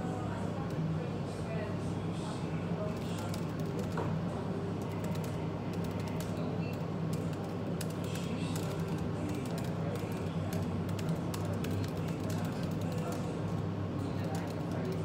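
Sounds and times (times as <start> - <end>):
background cafe chatter: 0.0 - 15.0
steady low hum: 0.0 - 15.0
laptop keyboard typing: 3.0 - 4.0, 4.8 - 13.3.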